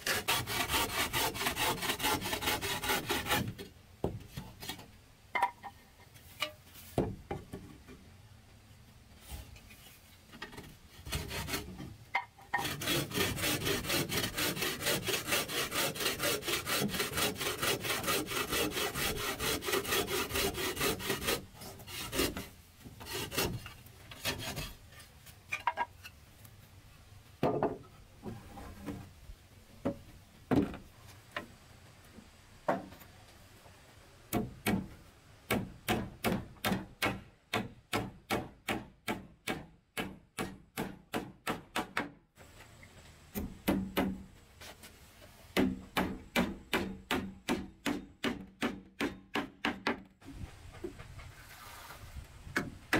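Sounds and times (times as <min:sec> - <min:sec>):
hand saw cutting wood: 0:00.0 - 0:03.7, 0:10.9 - 0:25.6
knocks of wood being handled: 0:03.2 - 0:08.1, 0:21.6 - 0:26.2, 0:27.4 - 0:29.1, 0:29.8 - 0:31.6, 0:32.2 - 0:33.1, 0:34.3 - 0:42.7, 0:43.3 - 0:51.3.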